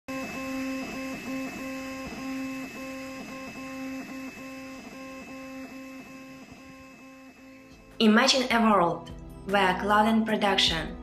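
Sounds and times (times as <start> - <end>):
stepper motors whining: 0.1 - 8.0.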